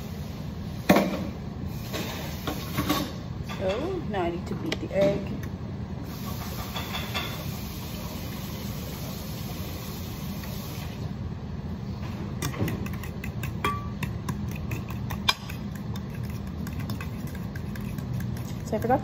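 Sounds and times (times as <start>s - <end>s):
low background hum: 0.0s - 19.0s
utensil scraping metal bowl: 12.8s - 19.0s.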